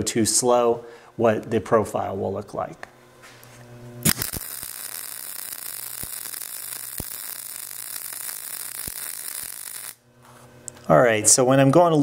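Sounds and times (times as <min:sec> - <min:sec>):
welding arc sizzling and popping: 0:03.2 - 0:10.9.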